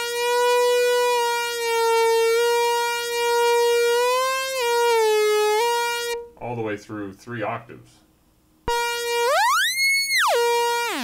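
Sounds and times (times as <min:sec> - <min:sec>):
synthesizer sustained note bending: 0:08.7 - 0:11.0.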